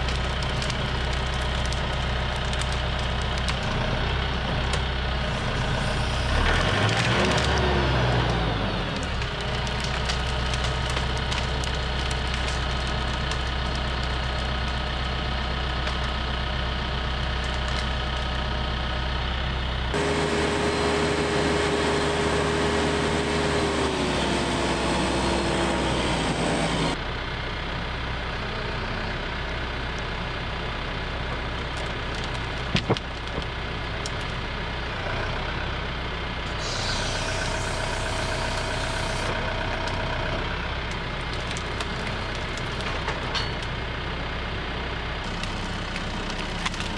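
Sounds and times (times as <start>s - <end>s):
tractor diesel engine running: 0.0s - 46.9s
steady hydraulic whine: 20.0s - 27.0s, 36.5s - 39.6s.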